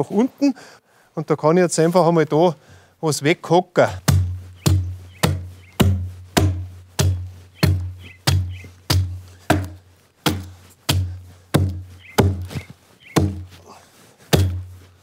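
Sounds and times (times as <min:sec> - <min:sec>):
adze chopping wood: 0:03.9 - 0:13.7, 0:14.3 - 0:14.8.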